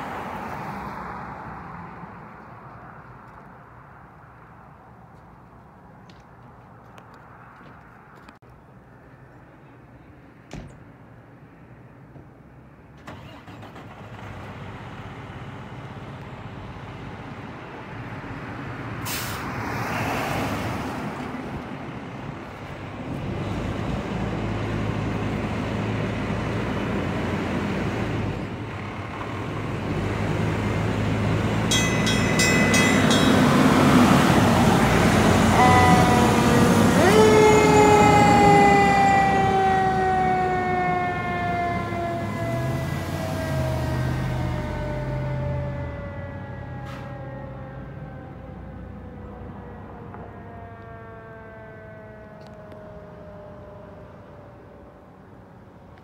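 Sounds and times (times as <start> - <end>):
fire truck diesel engine: 12.8 - 19.7, 20.4 - 56.0
air brakes hissing: 19.0 - 19.5
bell ringing rapidly: 31.7 - 33.8
mechanical siren wailing: 35.4 - 54.7.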